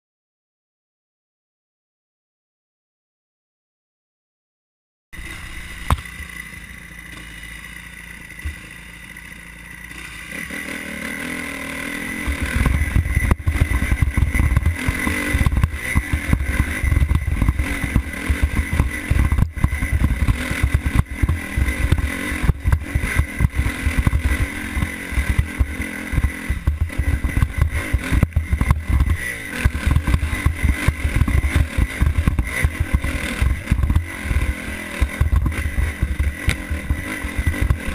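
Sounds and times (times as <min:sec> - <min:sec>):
dirt bike engine revving: 0:05.2 - 0:37.9
knocks and clatter on rock: 0:12.3 - 0:37.9.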